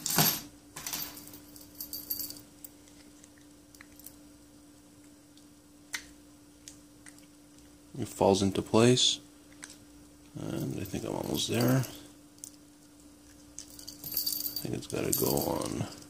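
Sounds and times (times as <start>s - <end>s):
faint steady hum: 0.0s - 16.0s
metal clip and ring jingling: 10.6s - 12.0s, 13.6s - 16.0s.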